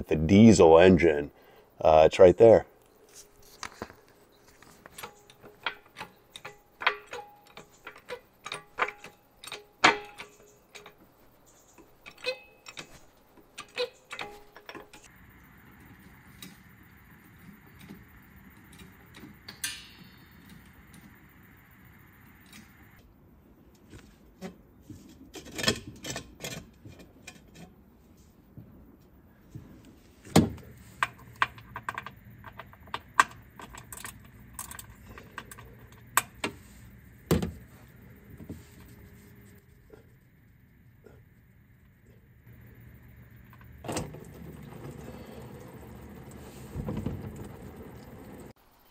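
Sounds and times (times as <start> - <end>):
faint steady noise: 0.0 - 48.9.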